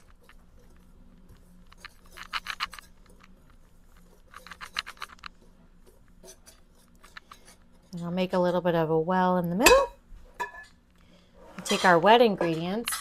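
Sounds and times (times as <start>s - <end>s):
whisk ticking and scraping in bowl: 0.0s - 8.6s.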